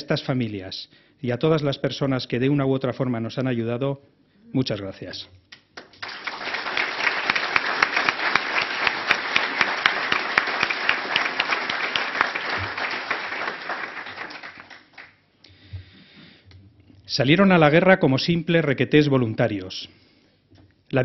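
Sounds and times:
audience applause: 5.8 - 15.2.

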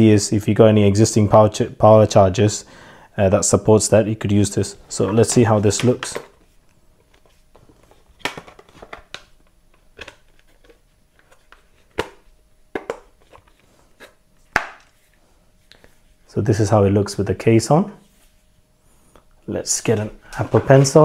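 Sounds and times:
plastic case clicks and taps: 12.8 - 13.1.

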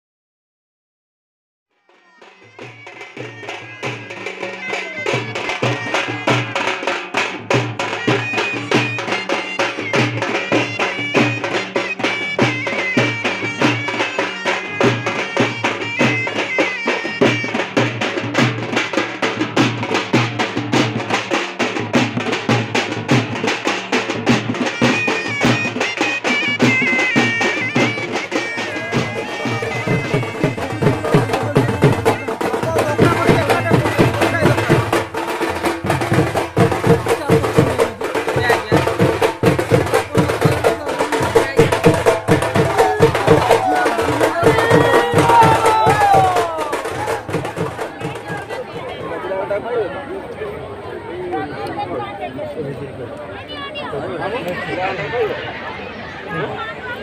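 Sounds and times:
regular drumming: 1.7 - 49.6
shrill reed pipe melody: 1.9 - 19.0, 24.5 - 48.2.

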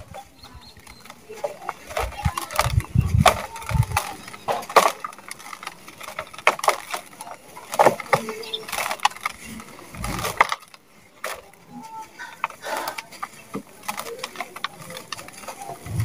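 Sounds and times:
dry cement blocks crunching: 0.0 - 16.0.

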